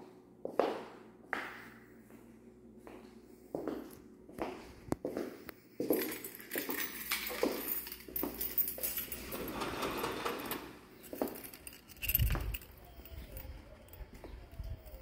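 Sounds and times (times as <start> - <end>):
footsteps: 0.5 - 9.3, 11.0 - 15.0
handling clicks and rattles: 6.4 - 15.0
sliding glass door: 9.1 - 10.9
wind rumble on microphone: 12.0 - 15.0.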